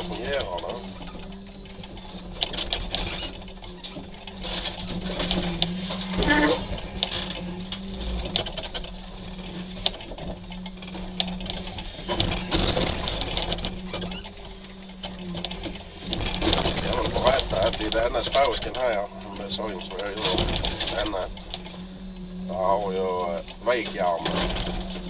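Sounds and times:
crane engine humming: 0.0s - 25.0s
metal clanks and scrapes: 0.0s - 25.0s
loud metal clatter: 10.9s - 14.8s, 15.5s - 21.7s.

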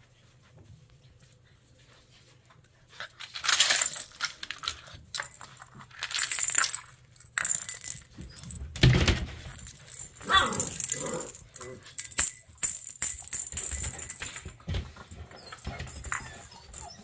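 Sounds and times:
plastic rattle toy clattering: 3.2s - 8.6s, 9.2s - 17.0s.

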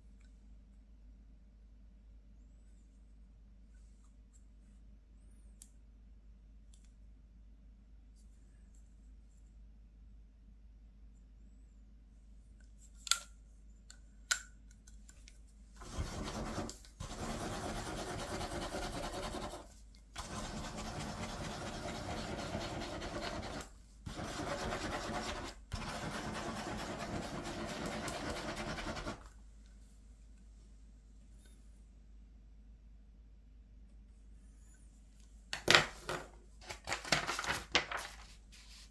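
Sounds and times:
ballpoint pen scribbling on paper: 15.8s - 29.2s.

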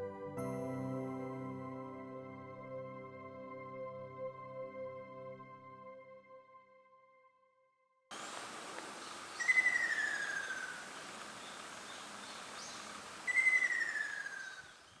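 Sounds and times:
forest ambience hiss: 8.1s - 15.0s
kingfisher calling: 8.8s - 15.0s.

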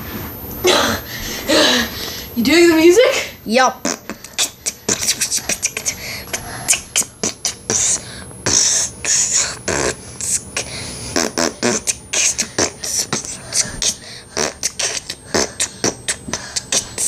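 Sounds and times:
beatbox dance beat: 3.7s - 17.0s.

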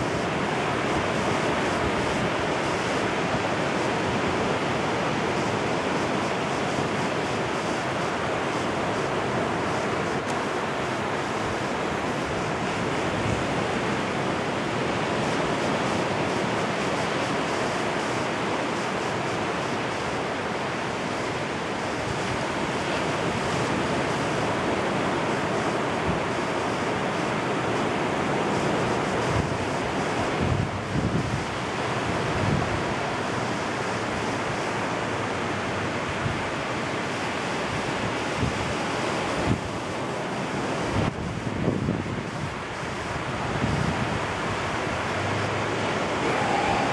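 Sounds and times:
surf washing up beach: 0.0s - 46.9s
wind buffeting microphone: 27.8s - 34.3s, 37.6s - 46.9s.

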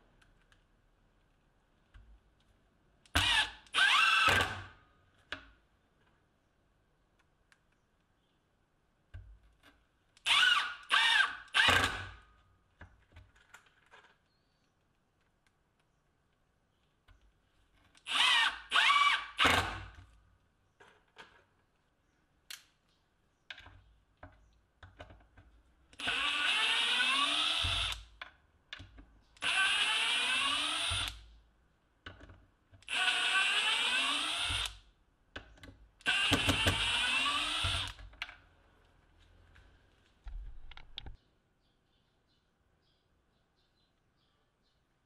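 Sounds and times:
impact driver running: 26.0s - 28.0s, 29.4s - 31.2s, 32.9s - 34.8s, 36.0s - 38.0s
small clicks: 40.2s - 41.2s.

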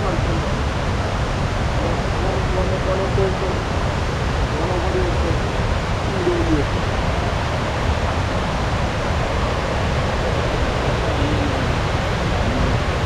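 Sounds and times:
waterfall rushing: 0.0s - 13.0s.

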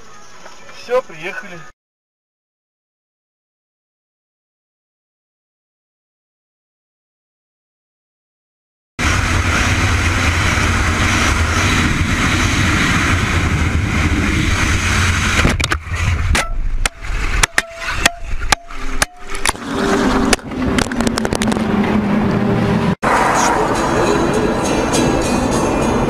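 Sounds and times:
vehicle engine and road noise: 9.0s - 26.0s.

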